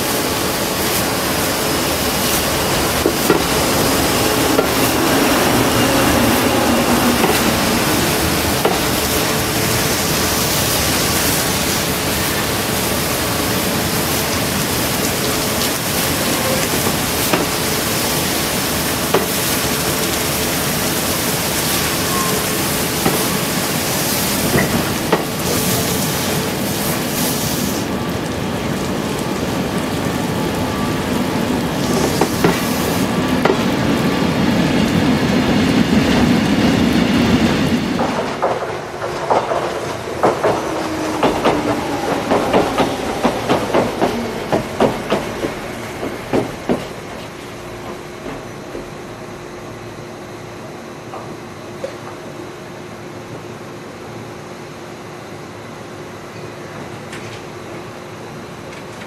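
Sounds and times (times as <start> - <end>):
water jets spraying a train: 0.0 - 59.0.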